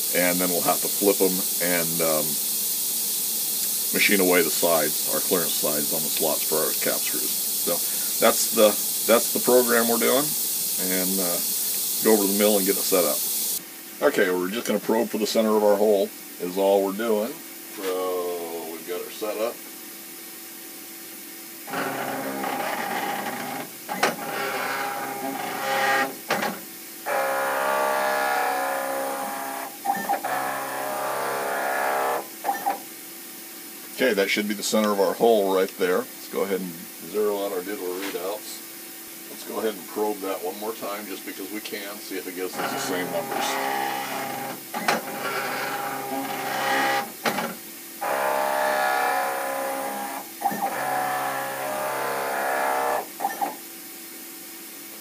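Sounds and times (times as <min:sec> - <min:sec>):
machine motors whining: 0:21.7 - 0:26.2, 0:27.1 - 0:32.3, 0:42.5 - 0:47.1, 0:48.0 - 0:53.4.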